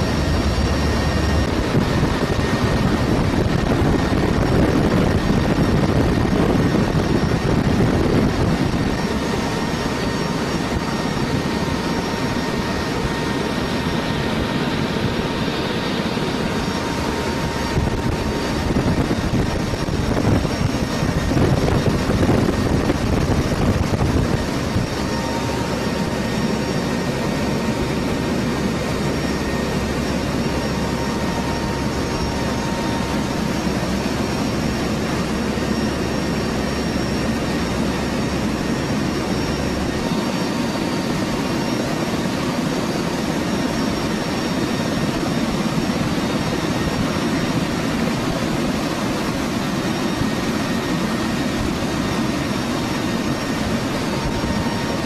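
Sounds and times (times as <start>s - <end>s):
deep low hum: 0.0s - 3.1s
rushing air: 0.0s - 4.6s
faint steady whines: 0.0s - 55.0s
turboprop engines droning: 0.0s - 55.0s.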